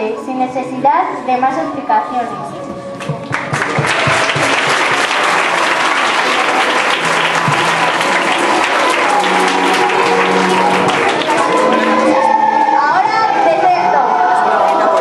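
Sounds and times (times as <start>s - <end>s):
children applauding: 3.0s - 12.7s, 14.2s - 15.0s.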